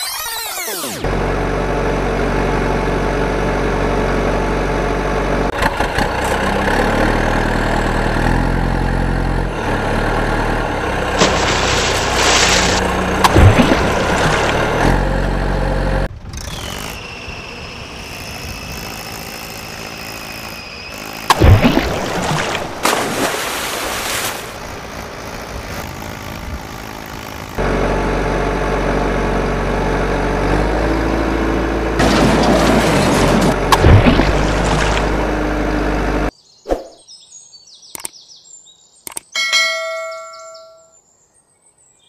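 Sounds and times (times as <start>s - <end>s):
truck engine running: 1.0s - 36.3s
splash into muddy water: 11.2s - 14.8s, 21.3s - 24.6s, 32.0s - 35.4s.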